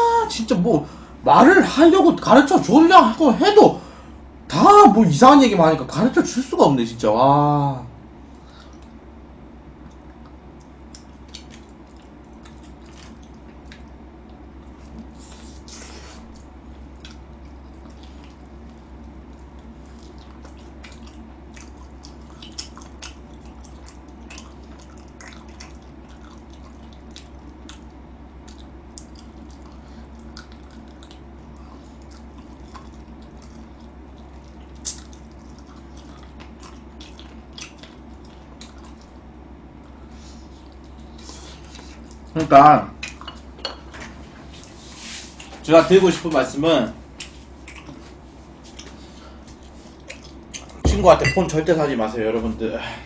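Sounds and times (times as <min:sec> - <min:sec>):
steady low hum: 0:00.0 - 0:53.0
person chewing: 0:09.8 - 0:42.3, 0:44.6 - 0:45.6, 0:47.1 - 0:50.8.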